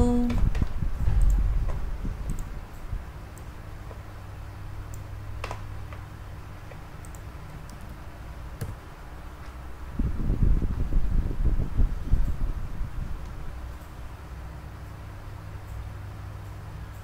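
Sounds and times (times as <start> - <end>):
low steady hum: 0.0 - 17.0
light clicks: 0.3 - 4.0.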